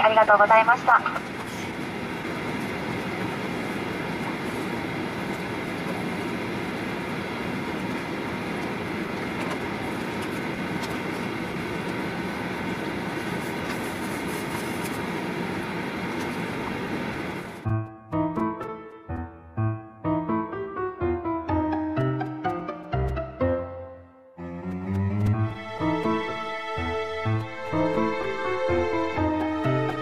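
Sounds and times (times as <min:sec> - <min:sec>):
airliner cabin hum and rumble: 0:00.0 - 0:23.5.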